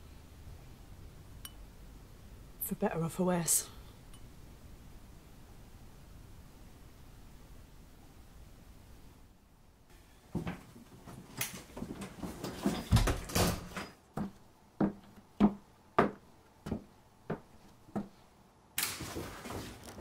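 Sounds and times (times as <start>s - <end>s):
footsteps on hard floor: 14.2s - 18.2s.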